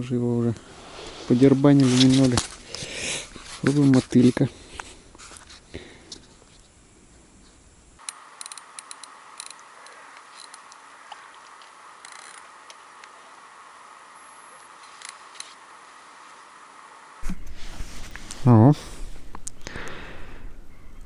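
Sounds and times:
steady background hiss: 0.0s - 21.0s
faint clicks and ticks: 8.0s - 13.2s.

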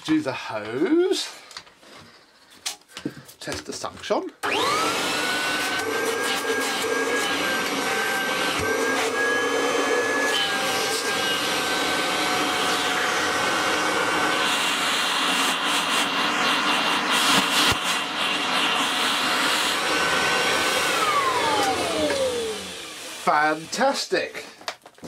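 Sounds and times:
vacuum cleaner motor whine: 4.4s - 24.1s.

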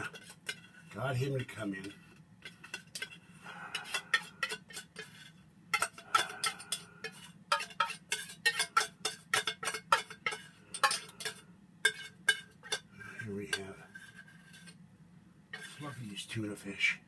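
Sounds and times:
metal kitchenware clinking: 0.0s - 0.7s, 1.4s - 12.9s.

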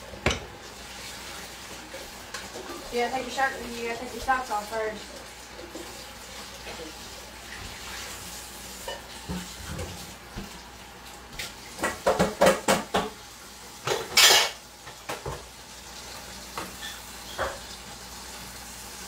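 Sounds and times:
dishes clattering in metal sink: 0.2s - 0.6s, 8.8s - 10.5s, 11.4s - 13.2s, 13.8s - 15.5s, 16.5s - 17.8s.

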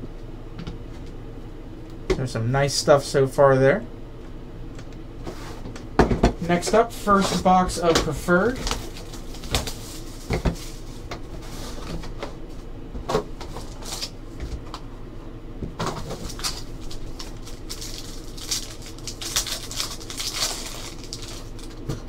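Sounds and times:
foil pack crinkling: 8.4s - 11.1s, 13.6s - 14.2s, 16.0s - 22.0s.

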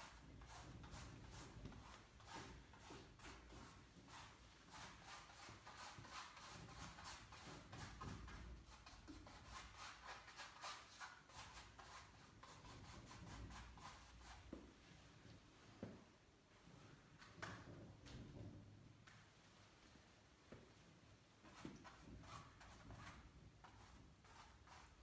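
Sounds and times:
paintbrush strokes on surface: 0.0s - 15.0s, 21.5s - 25.0s.

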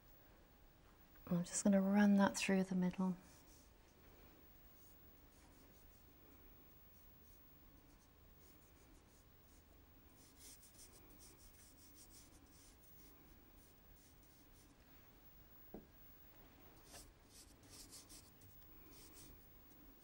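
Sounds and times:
low room hum: 0.0s - 20.0s
paintbrush swishing on paper: 3.2s - 3.8s, 16.8s - 19.4s.

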